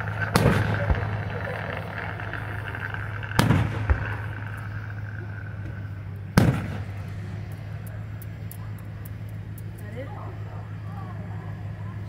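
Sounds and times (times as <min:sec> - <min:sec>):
firework shells booming: 0:00.0 - 0:09.8
steady low hum: 0:00.0 - 0:12.0
smaller firework bang: 0:00.2 - 0:05.8, 0:06.4 - 0:07.0.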